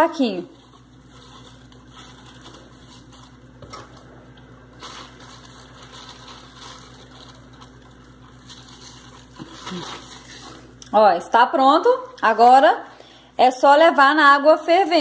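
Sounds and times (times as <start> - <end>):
plastic bag rustling and crinkling: 0.1 - 10.8, 14.4 - 15.0
liquid shifting in bag: 0.5 - 4.1, 4.7 - 10.8.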